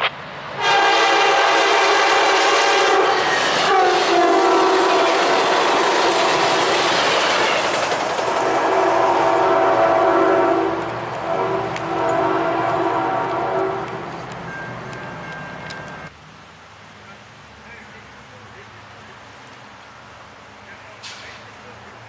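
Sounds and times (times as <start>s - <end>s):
train wheels on rails: 0.0s - 16.1s, 20.9s - 21.8s
locomotive air horn blast: 0.6s - 14.1s.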